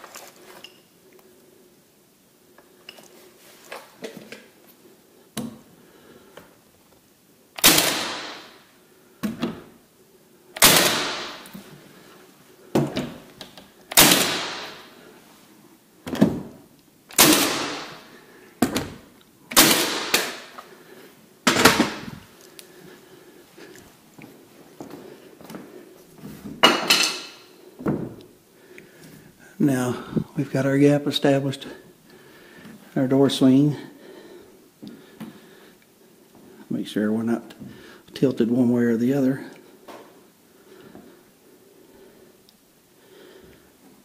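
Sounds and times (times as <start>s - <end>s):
nail gun shots: 7.6s - 8.6s, 10.6s - 11.5s, 13.9s - 14.9s, 17.1s - 18.1s, 19.5s - 20.6s.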